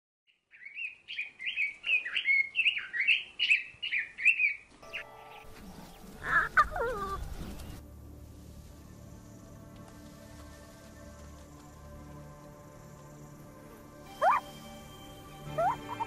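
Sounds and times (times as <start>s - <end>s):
bird chirping: 0.3s - 7.8s, 15.4s - 16.0s
background music: 4.8s - 16.0s.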